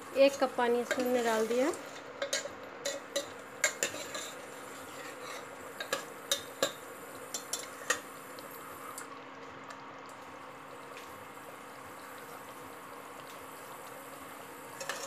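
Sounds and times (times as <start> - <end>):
ladle scraping metal pot: 0.8 - 6.7, 14.8 - 15.0.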